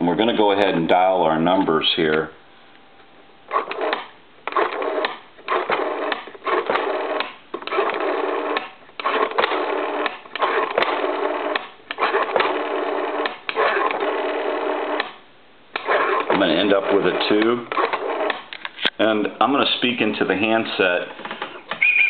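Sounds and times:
rotary telephone dial turning: 3.5s - 15.1s, 15.8s - 18.8s.

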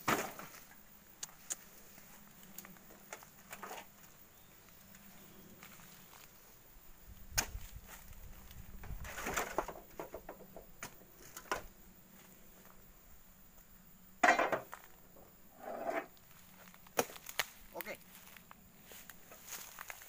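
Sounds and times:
metal bar knocking and scraping: 14.2s - 14.7s.

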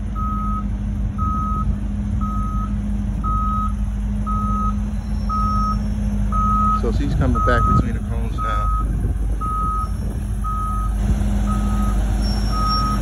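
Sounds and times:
bus engine running: 0.0s - 13.0s
back-up alarm beeping: 0.2s - 13.0s.

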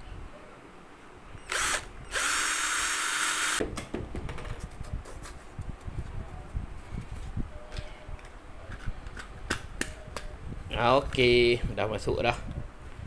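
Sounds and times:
cordless drill whirring: 1.5s - 3.6s.

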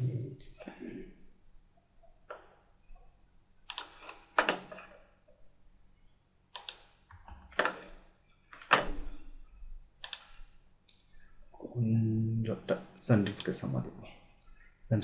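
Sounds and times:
computer mouse clicks: 3.6s - 4.6s, 6.5s - 7.7s, 10.0s - 11.0s.

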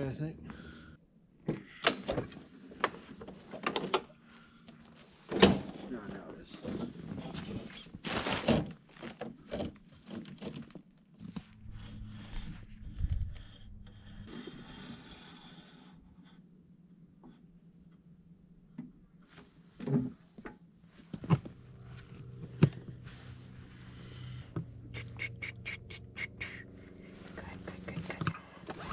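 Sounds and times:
low steady hum: 11.2s - 28.9s.

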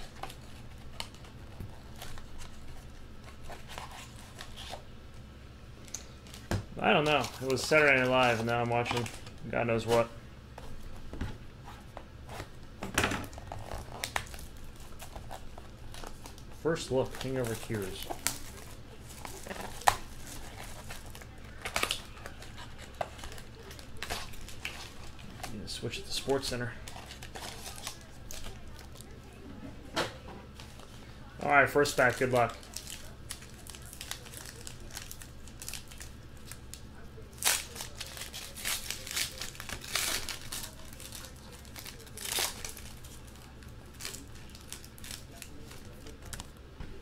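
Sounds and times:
low steady hum: 0.0s - 47.0s
card packs clicking and rustling: 5.8s - 10.1s, 12.4s - 29.2s, 30.5s - 46.6s.

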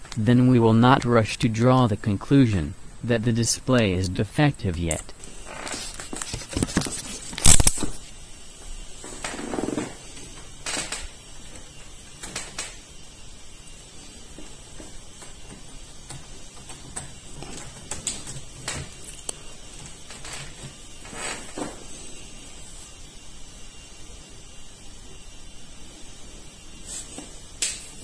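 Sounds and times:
hands handling a laptop: 5.6s - 8.0s.

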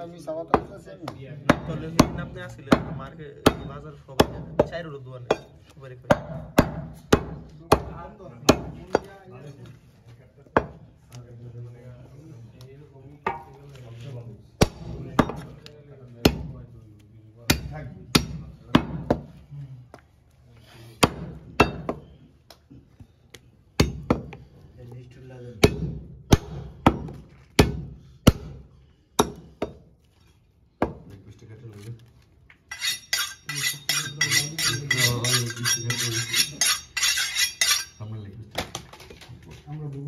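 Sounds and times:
cleaver chopping meat and bone: 0.5s - 9.1s, 14.6s - 15.5s, 16.2s - 16.6s, 17.5s - 19.3s, 21.0s - 22.0s, 23.8s - 24.4s, 25.6s - 29.9s.

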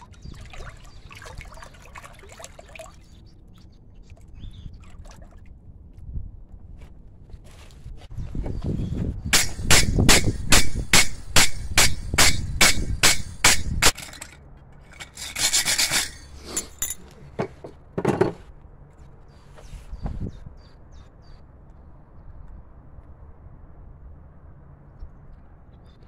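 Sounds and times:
wire brush scrubbing steel: 14.9s - 16.9s.

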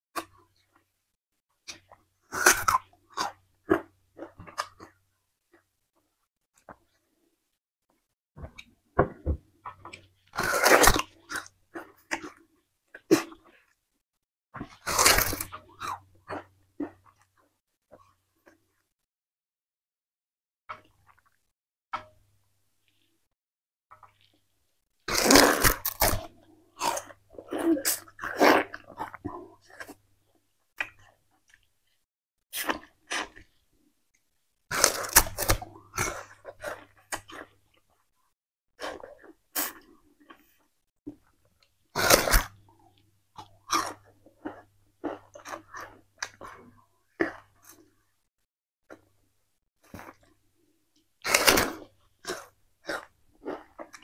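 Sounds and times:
person chewing raw sugarcane: 1.7s - 5.0s, 9.6s - 13.8s, 14.6s - 18.8s, 25.0s - 32.0s, 32.6s - 33.6s, 34.7s - 38.1s, 38.8s - 48.1s, 49.8s - 50.4s, 51.2s - 54.0s.

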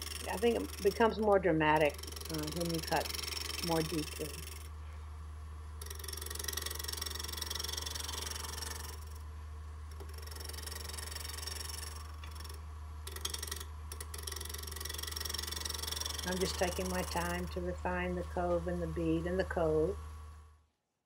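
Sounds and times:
gouge cutting wood: 0.0s - 4.7s, 5.8s - 9.2s, 10.0s - 17.4s
wood lathe humming: 0.0s - 20.5s.

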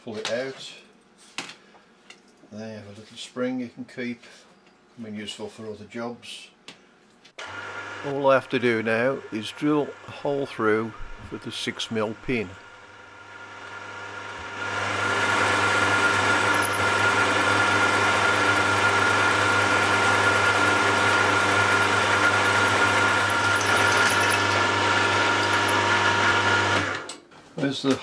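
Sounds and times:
drill motor whining: 9.3s - 27.1s
drill boring through metal: 14.8s - 27.0s.

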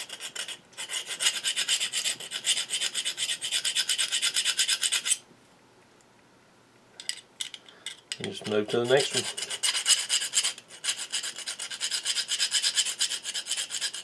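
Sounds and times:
steel file rasping metal: 8.8s - 14.0s.

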